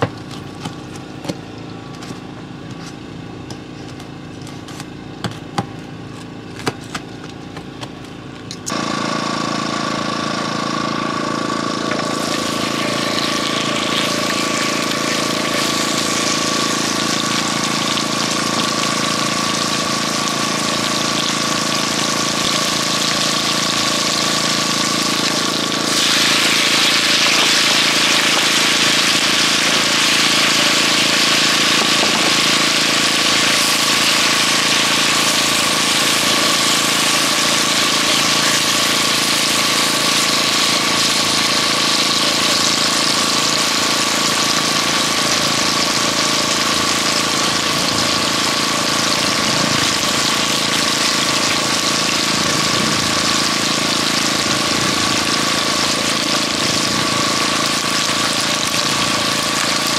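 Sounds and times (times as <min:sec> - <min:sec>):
motor running with thin whine: 0:00.0 - 0:59.9.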